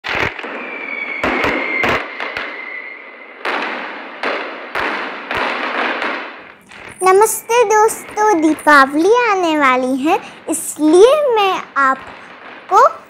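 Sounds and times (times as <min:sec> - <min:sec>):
fireworks bangs and crackle: 0:00.0 - 0:13.0
firework whistle: 0:00.1 - 0:05.7, 0:06.7 - 0:08.9.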